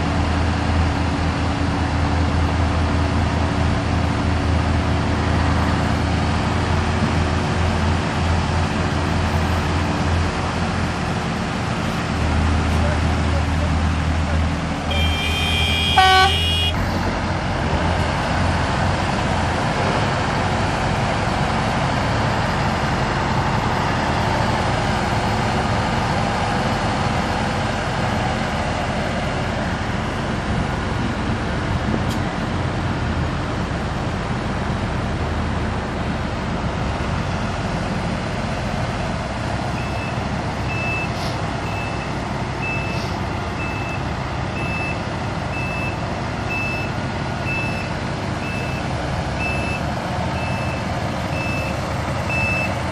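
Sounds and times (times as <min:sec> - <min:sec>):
diesel engines running: 0:00.0 - 0:52.9
reversing alarm beeping: 0:14.9 - 0:16.7, 0:39.8 - 0:49.8, 0:50.4 - 0:52.8.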